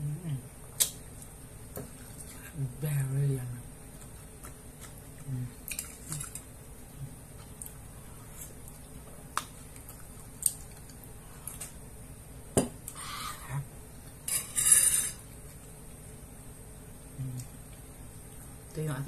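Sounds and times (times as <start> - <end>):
spoon scraping bowl: 14.3 - 15.2.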